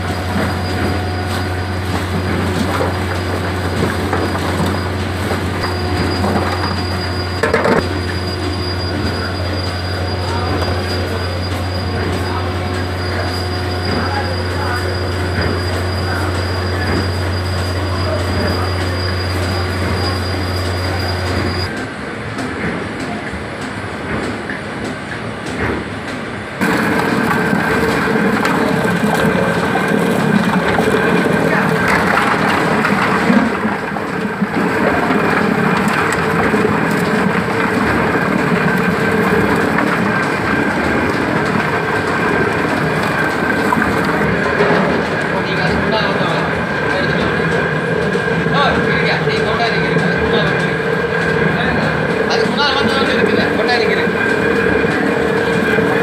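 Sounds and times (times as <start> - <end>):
machine grinding: 0.0 - 21.8, 26.6 - 56.0
low machine hum: 26.6 - 56.0.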